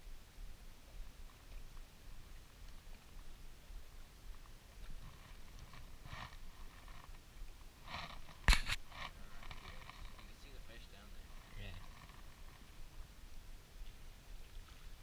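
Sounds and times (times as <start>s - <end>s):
scratchy handling rustles: 7.8s - 12.7s
sharp click: 8.4s - 8.8s.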